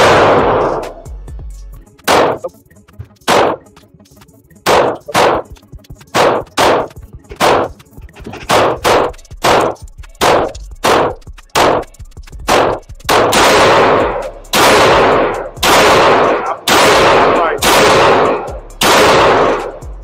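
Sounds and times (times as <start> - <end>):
pistol gunshots with echo: 0.0 - 1.0, 2.1 - 2.5, 3.3 - 3.7, 4.7 - 7.8, 8.4 - 11.9, 12.5 - 19.8.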